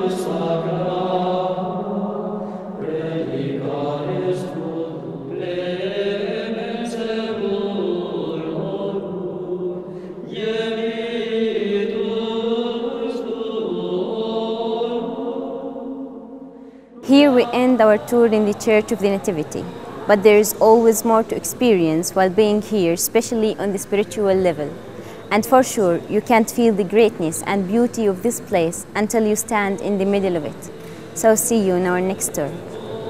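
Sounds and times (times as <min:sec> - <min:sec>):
slow vocal chant: 0:00.0 - 0:23.6, 0:30.4 - 0:33.0.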